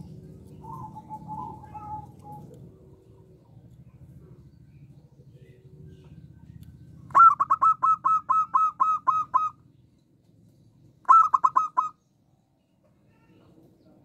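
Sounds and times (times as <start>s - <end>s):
dove calling in clipped notes: 0.0s - 4.4s, 5.4s - 9.8s, 11.0s - 12.0s.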